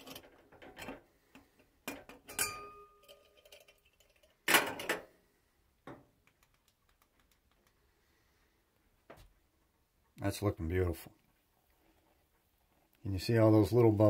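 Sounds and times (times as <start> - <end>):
metal cookware knocks and clinks: 1.9 - 3.7
metal cookware clattering: 1.9 - 5.1.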